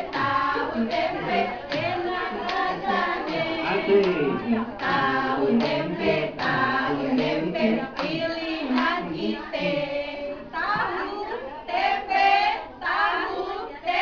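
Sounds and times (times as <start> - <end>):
women singing a cheer chant: 0.0 - 14.0.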